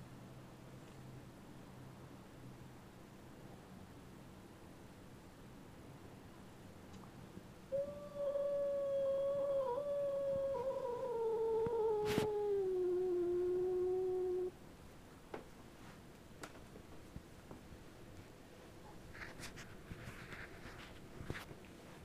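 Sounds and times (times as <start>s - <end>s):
cat yowling: 7.7s - 14.5s.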